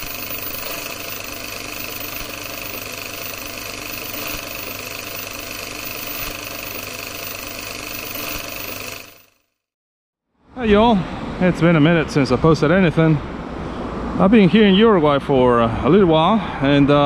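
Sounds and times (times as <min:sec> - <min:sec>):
film projector whirring: 0:00.0 - 0:09.4.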